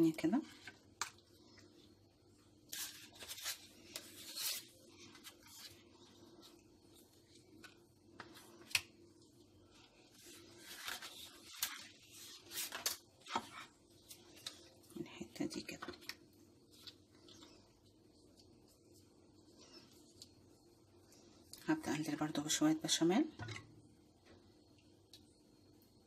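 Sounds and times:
pasta sheets rustling and scraping: 0:01.4 - 0:16.0.

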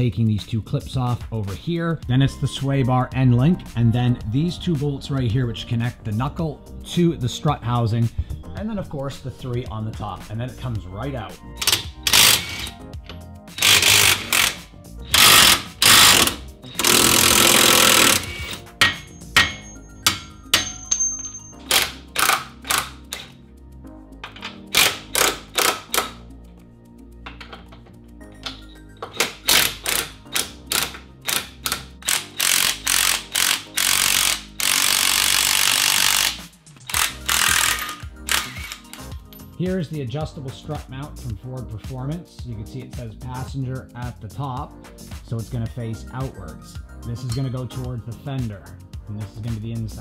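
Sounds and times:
background music: 0:00.0 - 0:50.0
impact wrench hammering: 0:11.6 - 0:12.7, 0:13.6 - 0:23.4, 0:24.2 - 0:26.2, 0:27.3 - 0:39.2.

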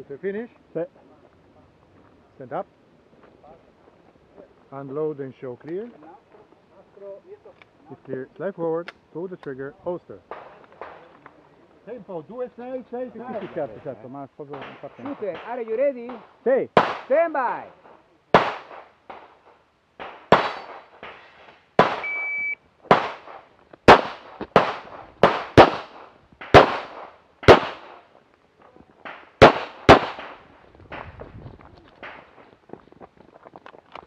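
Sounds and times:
pistol shots: 0:14.6 - 0:17.1, 0:18.3 - 0:19.4, 0:20.0 - 0:21.2, 0:21.8 - 0:28.0, 0:29.0 - 0:31.0
short steady beep: 0:22.0 - 0:22.6.

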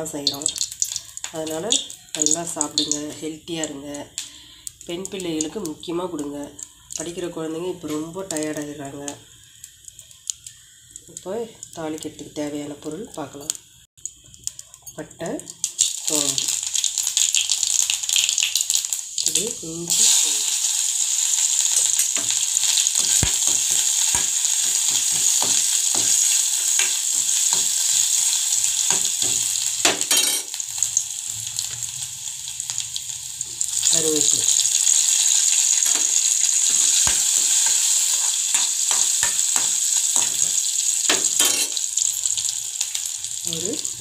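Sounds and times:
spices sizzling in hot oil: 0:00.0 - 0:44.0
spoon scraping and tapping pan: 0:23.0 - 0:28.0, 0:35.8 - 0:41.8.

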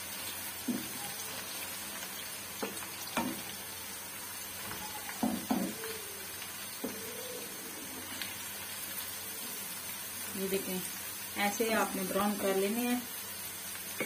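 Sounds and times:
onions sizzling in oil: 0:00.0 - 0:14.0
wooden spatula knocking pan: 0:00.6 - 0:01.0, 0:05.2 - 0:05.8.

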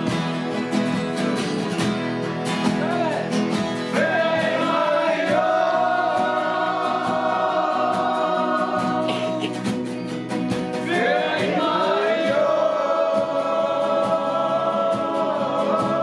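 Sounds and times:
acoustic guitars strumming: 0:00.0 - 0:16.0
men singing in harmony: 0:03.9 - 0:09.7, 0:10.7 - 0:16.0.

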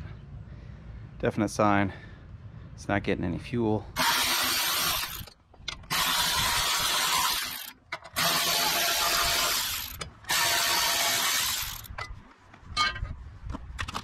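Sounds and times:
cordless electric ratchet spinning: 0:04.0 - 0:05.3, 0:05.9 - 0:11.9.

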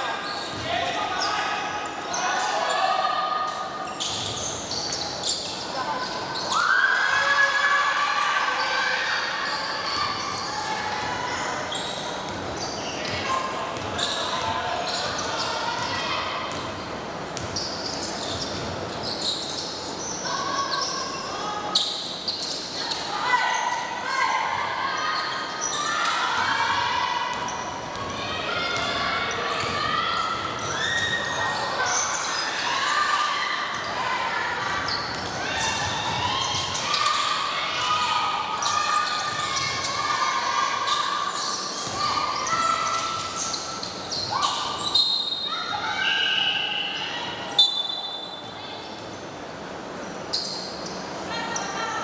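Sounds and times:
sneakers squeaking on floor: 0:00.0 - 0:07.0, 0:08.4 - 0:34.0, 0:34.6 - 0:51.7
ball bouncing on wooden court: 0:17.3 - 0:18.8.

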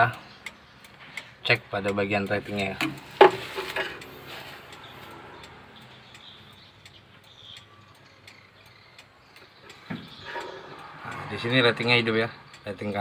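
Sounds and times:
turn-signal relay clicking: 0:00.0 - 0:13.0.

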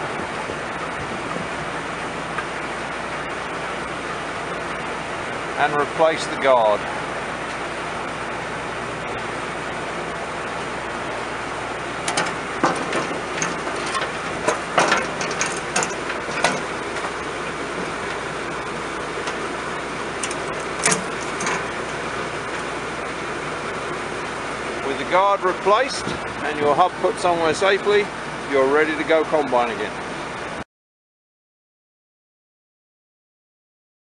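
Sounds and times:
steady mechanical hum: 0:00.0 - 0:30.6
sheet metal guard clanking: 0:12.0 - 0:19.5, 0:20.1 - 0:22.7.

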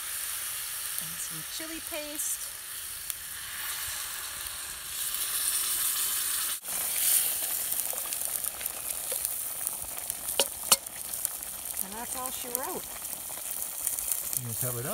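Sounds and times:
liquid sizzling in a hot pot: 0:00.0 - 0:14.9
wooden spoon stirring: 0:07.8 - 0:09.7.

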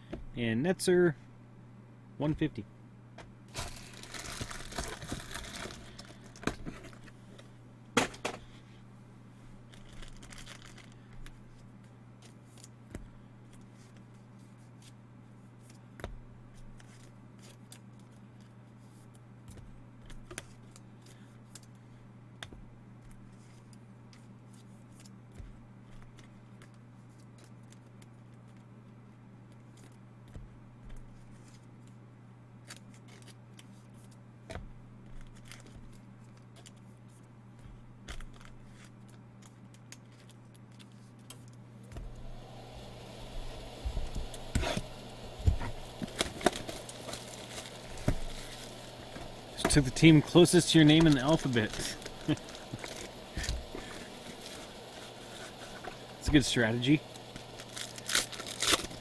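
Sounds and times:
packaging torn and crinkled: 0:03.5 - 0:06.4, 0:09.7 - 0:11.0, 0:45.7 - 0:59.0
low hum: 0:41.8 - 0:59.0.

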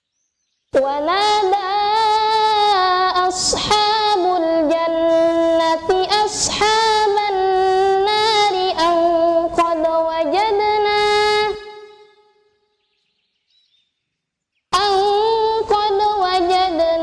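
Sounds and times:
woman chanting recitation: 0:00.8 - 0:12.1, 0:14.8 - 0:17.0.

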